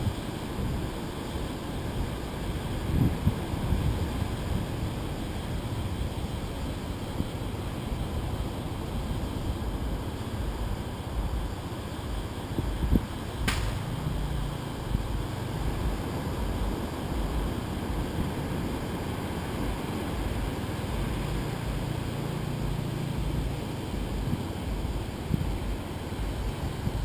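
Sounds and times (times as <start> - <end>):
wind: 0.0 - 27.0
sharp click: 13.4 - 13.9.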